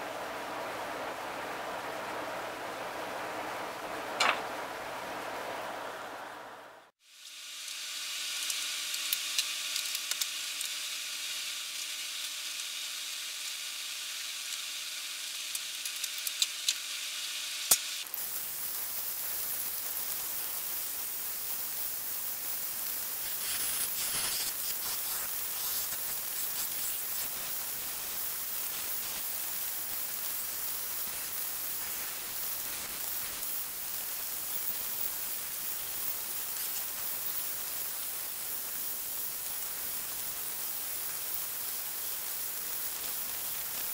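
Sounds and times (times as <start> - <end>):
faint hum: 0.0 - 7.0
steady hiss: 0.0 - 43.9.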